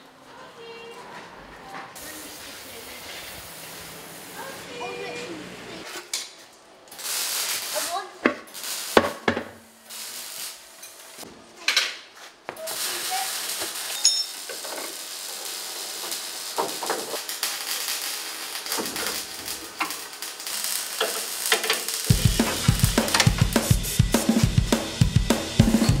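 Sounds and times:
steady hiss: 2.0s - 5.9s, 6.9s - 11.2s, 12.6s - 26.0s
metal clanks and knocks: 21.0s - 23.6s
sharp metal strikes: 22.1s - 26.0s.

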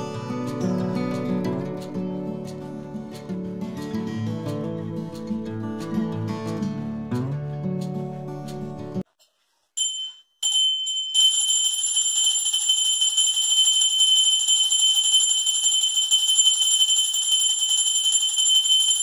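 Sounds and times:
small handbell ringing fast: 9.8s - 19.0s.

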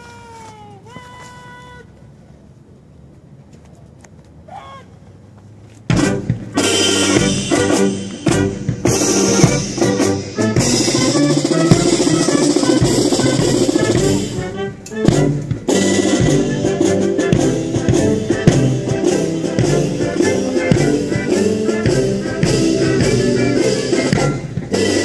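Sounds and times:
marching band playing: 5.9s - 25.0s.

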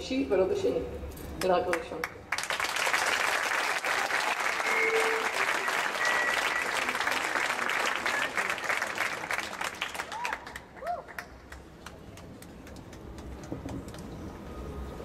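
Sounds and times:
audience applauding: 2.3s - 14.1s.

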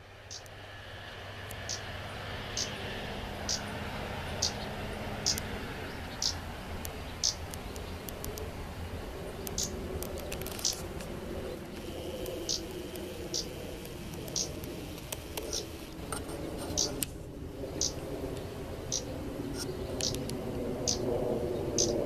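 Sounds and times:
steady low background hum: 0.0s - 22.0s.

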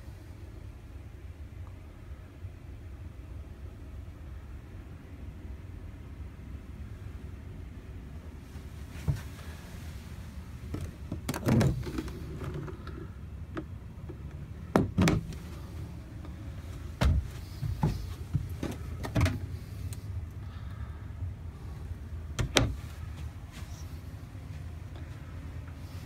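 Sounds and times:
steady low rumble: 0.0s - 26.0s
cabinet door knocks and clicks: 14.8s - 15.3s.

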